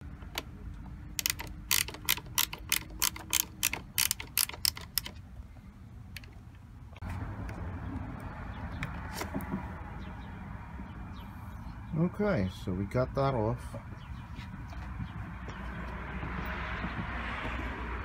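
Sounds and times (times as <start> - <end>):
socket wrench ratchet clicking: 1.2 - 5.2.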